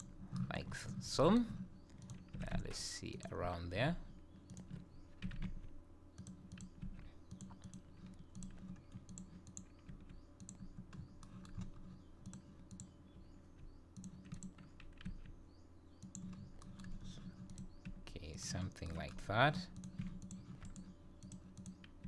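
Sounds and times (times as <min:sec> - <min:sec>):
computer mouse clicking: 0:00.0 - 0:00.5, 0:01.8 - 0:02.7, 0:04.4 - 0:18.0, 0:19.7 - 0:22.0.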